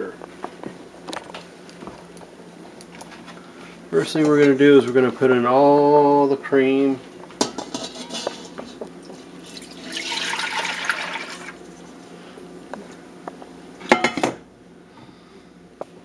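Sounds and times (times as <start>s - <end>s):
cream pouring into a pot: 9.5s - 11.6s.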